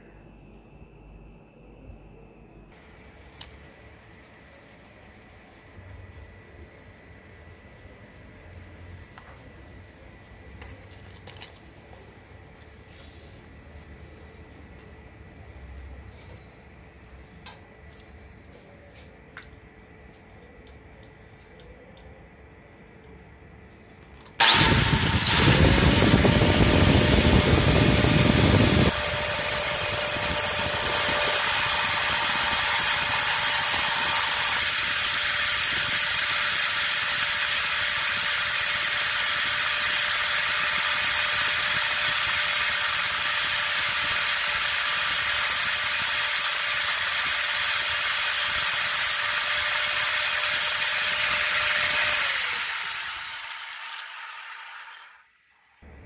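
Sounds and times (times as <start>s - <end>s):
drill bit grinding on disc: 24.4s - 55.3s
angle grinder whining: 24.4s - 55.4s.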